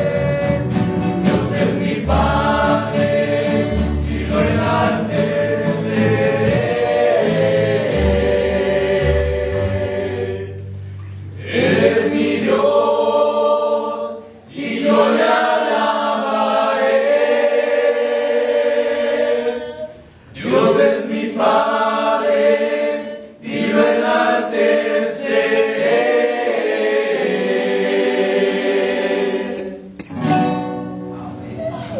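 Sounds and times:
group of voices singing in harmony: 0.0s - 30.1s.

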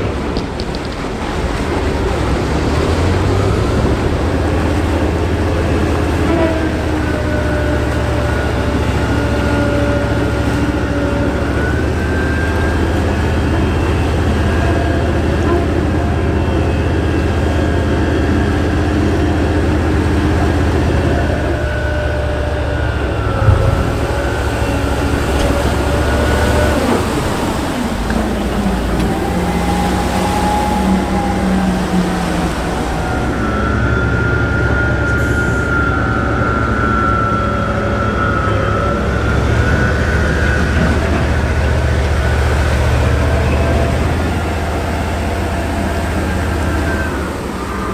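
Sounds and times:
churning water: 0.0s - 47.9s
vehicle engine whining under load: 0.0s - 47.9s
short thump: 23.4s - 24.3s.

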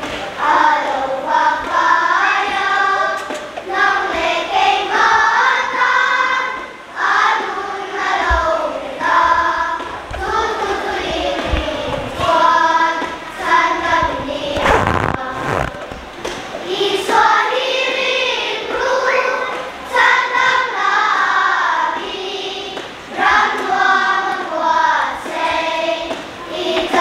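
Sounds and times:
children's choir singing: 0.0s - 27.0s.

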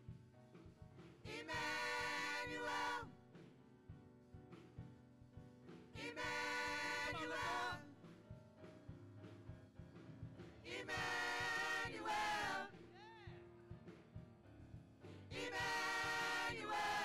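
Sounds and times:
women's choir singing: 1.3s - 3.1s, 6.0s - 7.9s, 10.6s - 12.8s, 15.3s - 17.0s.

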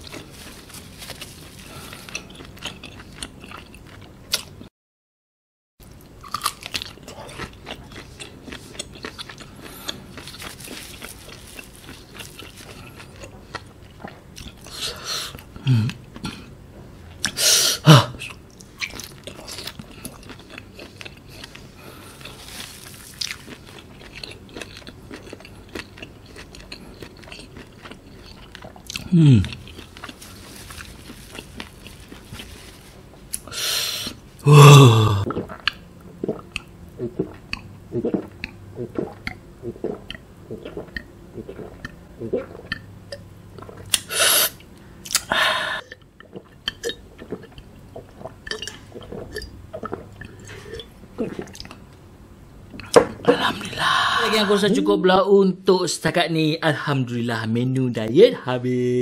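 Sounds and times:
close chewing with wet mouth sounds: 0.0s - 4.5s, 6.2s - 15.5s, 18.2s - 22.4s, 23.0s - 30.2s, 35.2s - 44.0s, 45.0s - 51.9s.

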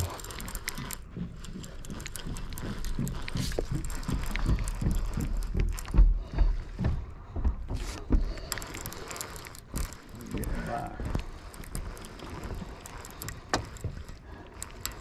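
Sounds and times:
fishing reel clicks and knocks: 0.0s - 6.1s, 8.3s - 15.0s.

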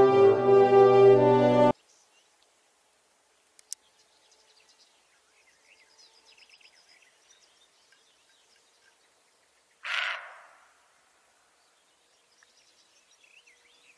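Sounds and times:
small birds chirping: 1.7s - 2.6s, 3.2s - 10.2s, 11.2s - 13.9s.

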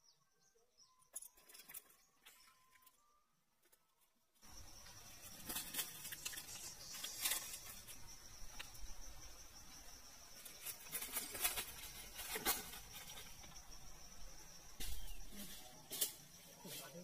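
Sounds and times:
rustling in dry leaves: 4.4s - 8.9s, 9.7s - 13.9s, 14.7s - 17.0s.

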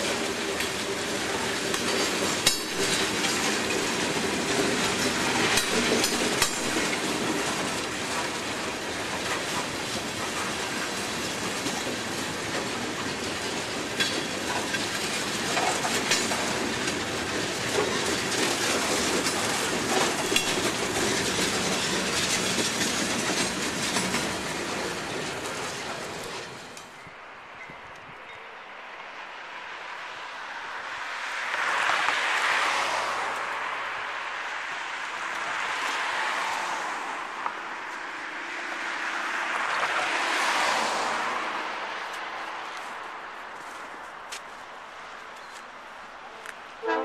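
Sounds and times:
train wheels clacking on rails: 0.0s - 28.4s.

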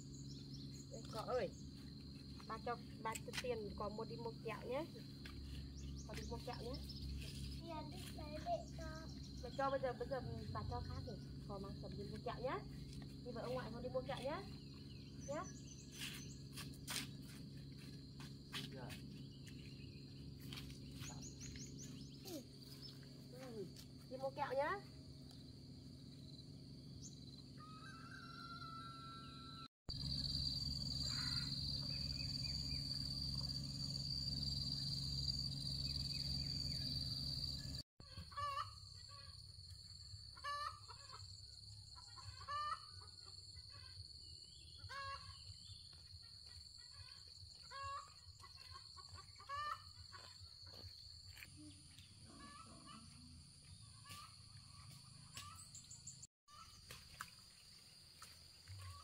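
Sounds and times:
high insect whine: 0.0s - 37.8s.

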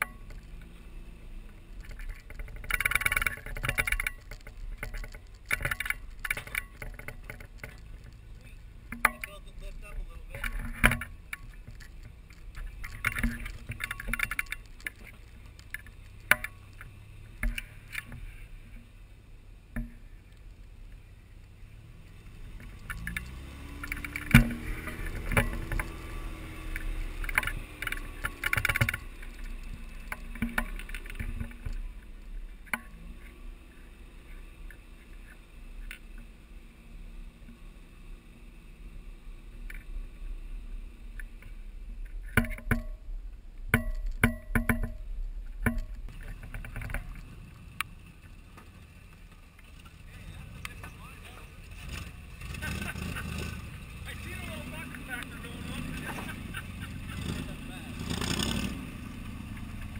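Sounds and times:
knocks and clatters: 0.0s - 0.8s, 1.4s - 18.9s, 22.4s - 33.4s, 41.2s - 59.9s
truck engines running: 0.0s - 59.9s.

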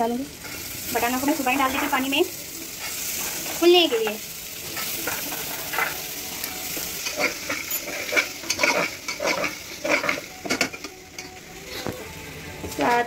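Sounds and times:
food sizzling: 0.0s - 13.0s
ladle scraping metal pot: 7.0s - 10.6s.

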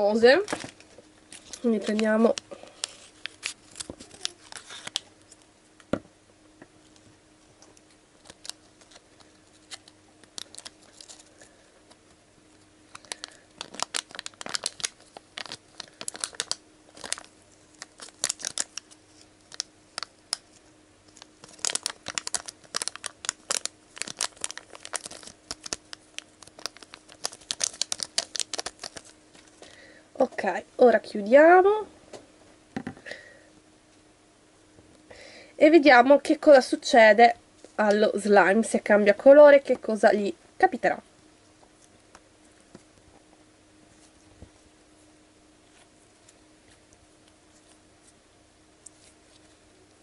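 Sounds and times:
foil crackling and tearing: 0.4s - 5.0s, 8.2s - 11.6s, 12.9s - 29.6s.

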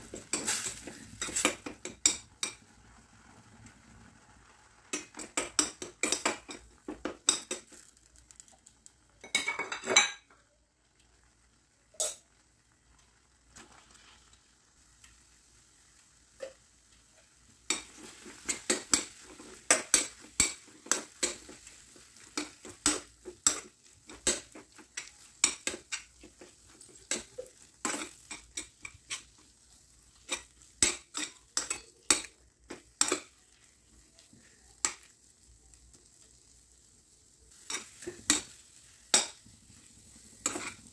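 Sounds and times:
metal spoon scraping a pan: 0.0s - 2.7s, 4.9s - 7.9s, 13.5s - 14.5s, 16.4s - 35.1s, 37.5s - 40.9s.

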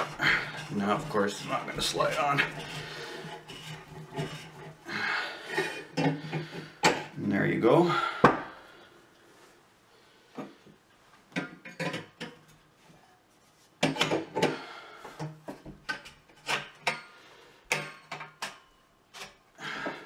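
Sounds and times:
pipe scraping: 0.0s - 7.2s.

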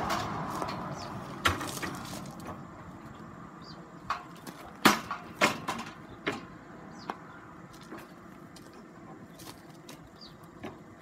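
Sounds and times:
board knocking against steel frame: 4.1s - 6.5s.

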